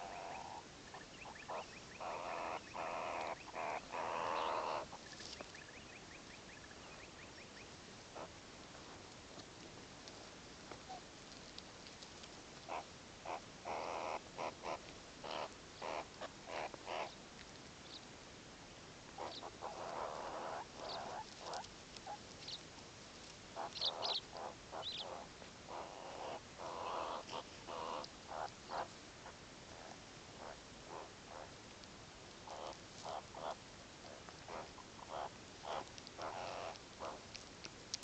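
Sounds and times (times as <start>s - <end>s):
meerkat small calls: 0.0s - 5.4s, 12.6s - 17.2s, 19.2s - 22.6s, 23.6s - 31.8s, 32.4s - 38.0s
soft scratchy grooming sounds: 2.1s - 5.7s, 7.6s - 17.8s, 19.2s - 25.2s, 25.8s - 38.0s.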